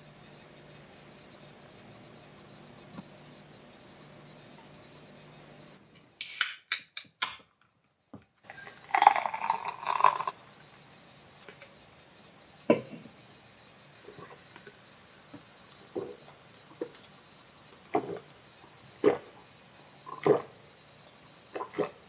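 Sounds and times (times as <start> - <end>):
drink pouring into a glass: 8.5 - 10.4.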